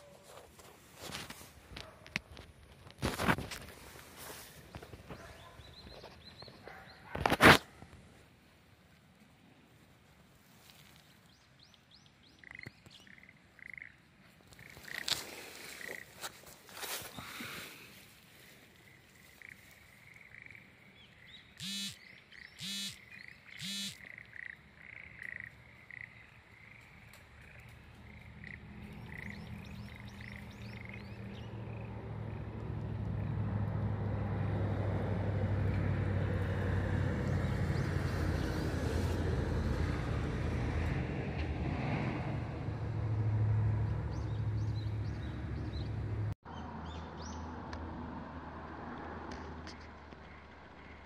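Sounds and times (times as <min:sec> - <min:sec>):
loud frog croaks: 0:12.4 - 0:15.2, 0:19.4 - 0:20.9, 0:22.6 - 0:31.0
soft short repeated calls: 0:21.5 - 0:26.1
low engine hum: 0:27.2 - 0:51.0.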